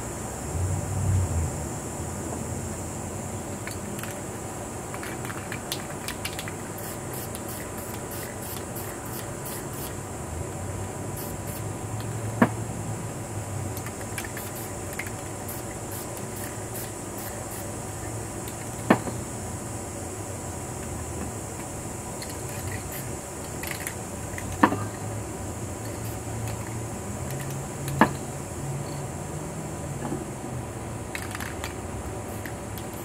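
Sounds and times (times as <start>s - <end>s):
spray paint can hissing: 3.5s - 10.0s, 11.1s - 12.2s, 13.8s - 18.8s, 21.6s - 25.0s, 25.8s - 28.0s, 31.1s - 33.0s.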